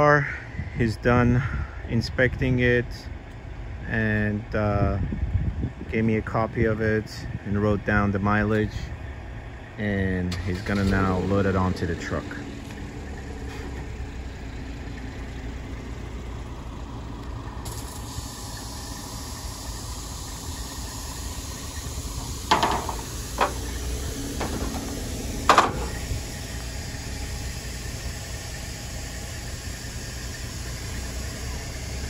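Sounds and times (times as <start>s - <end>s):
engine idling: 0.0s - 32.0s
sharp knocks: 22.5s - 23.7s, 24.4s - 26.0s.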